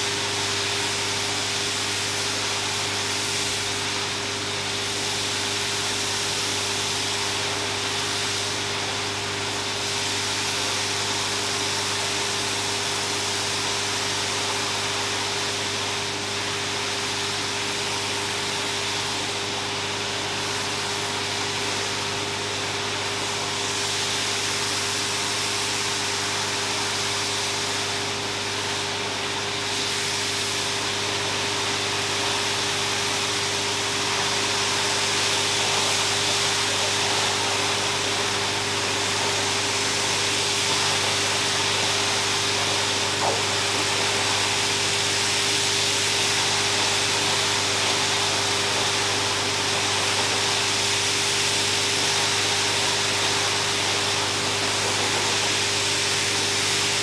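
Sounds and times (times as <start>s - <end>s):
water spray hissing: 29.5s - 57.0s.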